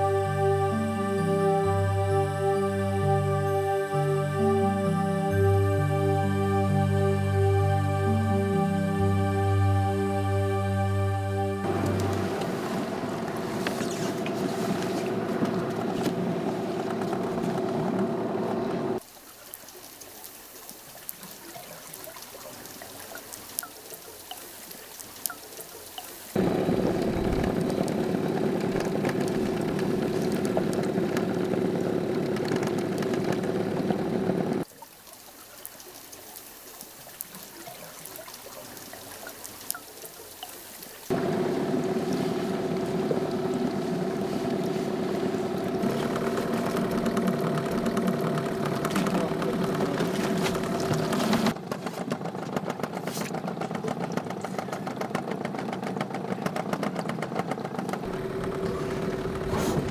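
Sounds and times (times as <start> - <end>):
boat engine running: 0.0 - 19.0, 26.4 - 34.7, 41.1 - 59.9
faint water sounds: 0.0 - 56.5, 57.4 - 59.9
fine clicks and drips: 19.0 - 26.4, 27.0 - 51.6.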